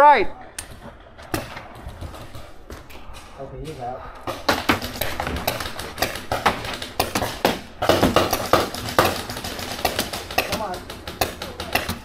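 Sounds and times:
paintball markers popping: 0:04.2 - 0:12.0.

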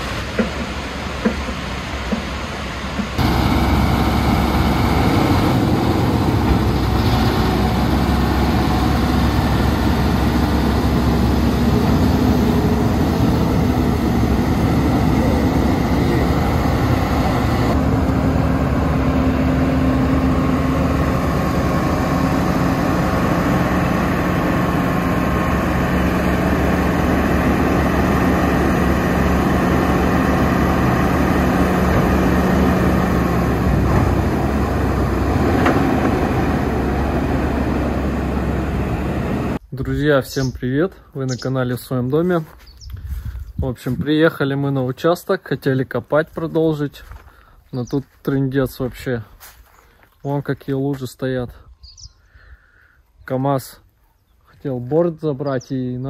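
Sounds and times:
vehicle engine humming: 0:00.0 - 0:39.8.

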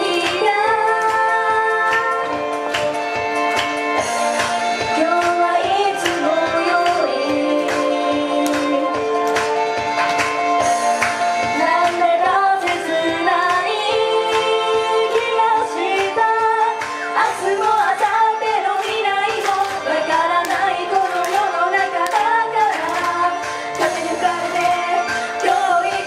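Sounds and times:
girl singing into a microphone: 0:00.0 - 0:02.2, 0:04.9 - 0:08.9
pop backing track with beat: 0:00.0 - 0:26.0.

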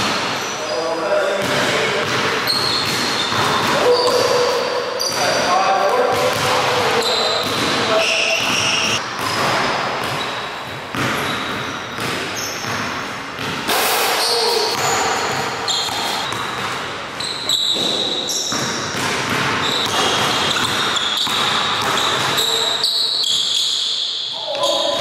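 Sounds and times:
sneakers squeaking: 0:00.0 - 0:25.0
basketball dribbled on hardwood: 0:17.7 - 0:22.5.

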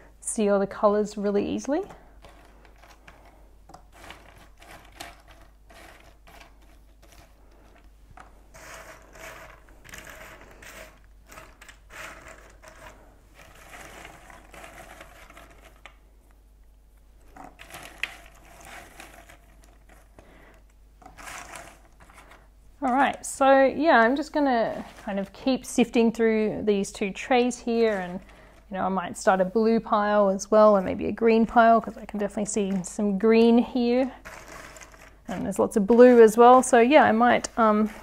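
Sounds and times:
puzzle pieces clicking and rustling: 0:17.4 - 0:20.2, 0:21.0 - 0:22.4, 0:34.2 - 0:35.2.

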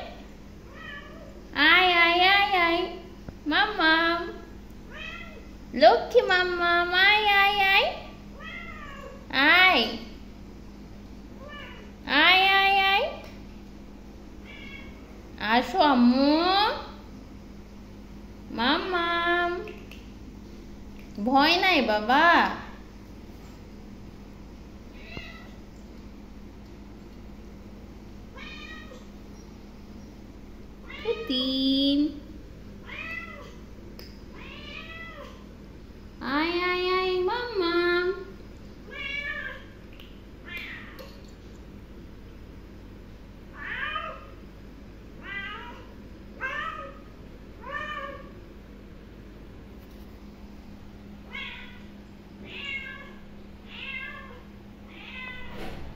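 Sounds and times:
steady low hum: 0:00.0 - 0:55.9
cat meowing softly: 0:00.7 - 0:01.4, 0:04.9 - 0:05.5, 0:08.4 - 0:09.2, 0:11.4 - 0:11.9, 0:14.4 - 0:15.0, 0:24.9 - 0:25.6, 0:28.4 - 0:29.1, 0:32.8 - 0:33.6, 0:34.4 - 0:35.4, 0:43.6 - 0:44.4, 0:45.2 - 0:48.3, 0:51.3 - 0:55.7.

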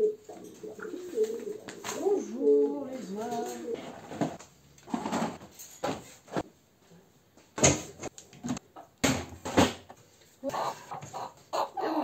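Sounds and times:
household objects clattering: 0:03.0 - 0:06.5.

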